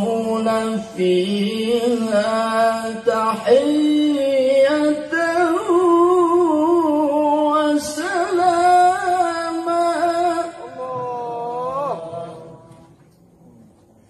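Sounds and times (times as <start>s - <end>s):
man reciting melodically: 0.0s - 13.0s.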